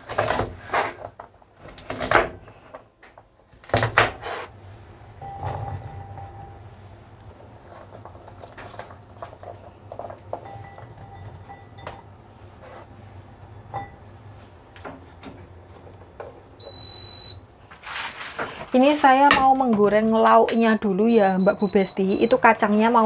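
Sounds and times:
appliance beep: 0:05.2 - 0:06.7, 0:10.4 - 0:12.1, 0:16.6 - 0:17.5, 0:20.4 - 0:22.6.

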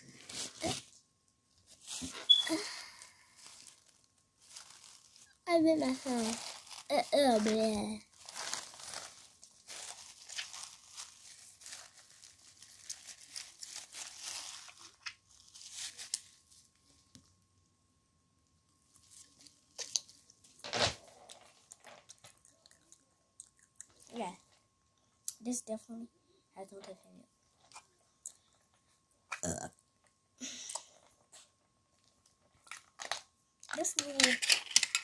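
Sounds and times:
paper wrapper crinkling and tearing: 0:01.7 - 0:16.8.

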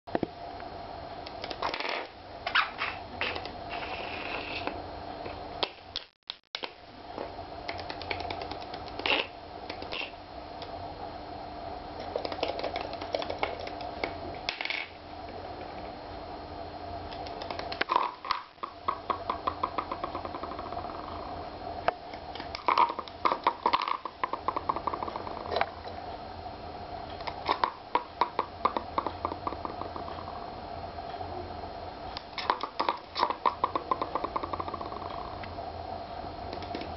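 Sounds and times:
steady low hum: 0:00.1 - 0:36.9
budgie clicks and taps: 0:07.7 - 0:09.1
budgie clicking and rattling: 0:07.7 - 0:10.1, 0:12.0 - 0:14.9.

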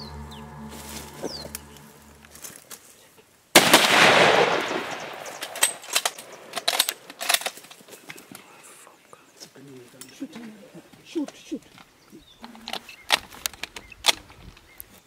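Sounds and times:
rifle shot echoing: 0:03.6 - 0:06.5.

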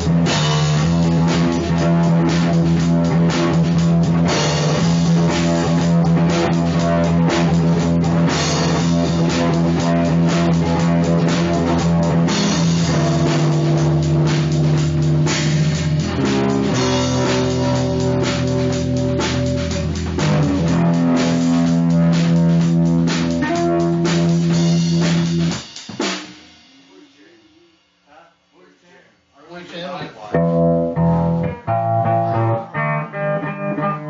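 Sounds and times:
rock band music: 0:00.0 - 0:27.0, 0:30.2 - 0:34.0.

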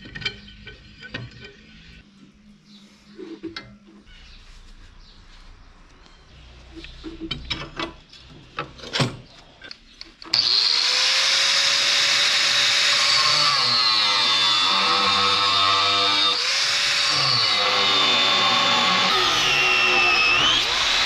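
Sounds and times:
angle grinder whine: 0:10.3 - 0:21.0.

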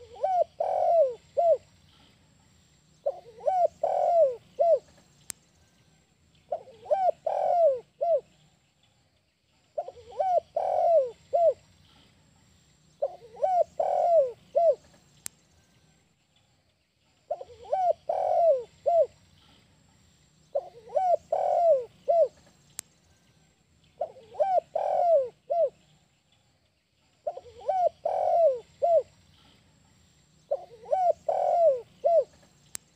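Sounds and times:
dove cooing: 0:00.0 - 0:01.7, 0:03.0 - 0:05.0, 0:06.5 - 0:08.3, 0:09.8 - 0:11.6, 0:13.0 - 0:14.9, 0:17.3 - 0:19.2, 0:20.5 - 0:22.4, 0:24.0 - 0:25.8, 0:27.2 - 0:29.1, 0:30.5 - 0:32.4.

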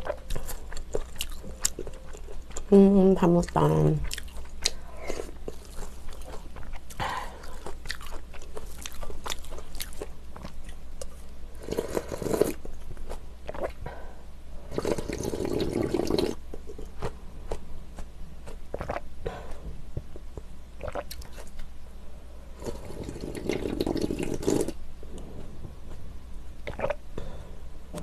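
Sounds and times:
chewing with wet mouth clicks: 0:00.0 - 0:02.7, 0:04.0 - 0:11.2
slurping broth from a bowl: 0:11.6 - 0:12.6, 0:14.7 - 0:16.4, 0:22.6 - 0:24.8.

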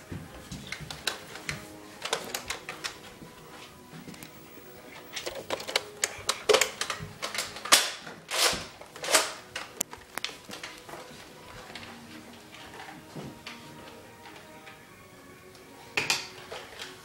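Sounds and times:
toy blasters clicking and popping: 0:05.1 - 0:10.8.

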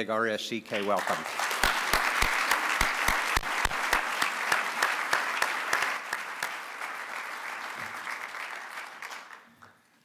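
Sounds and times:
audience applauding: 0:00.7 - 0:09.6.

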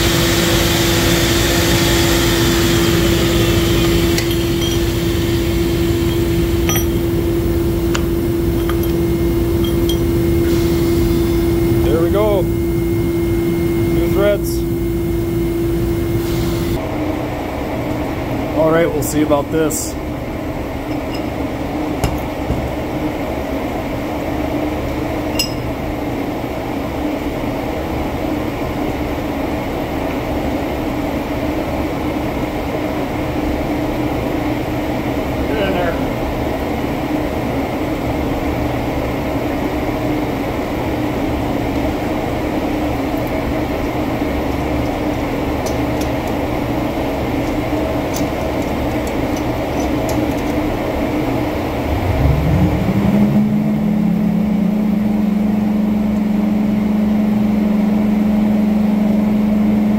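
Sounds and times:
steady machinery hum: 0:00.0 - 0:59.9
metallic clinks of pipe fitting: 0:04.2 - 0:04.9, 0:06.1 - 0:07.1, 0:08.6 - 0:10.2
low rumble: 0:51.5 - 0:56.2.

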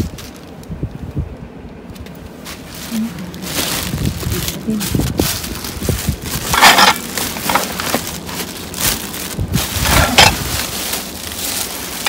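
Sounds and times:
plastic bags crinkling: 0:02.5 - 0:12.0.

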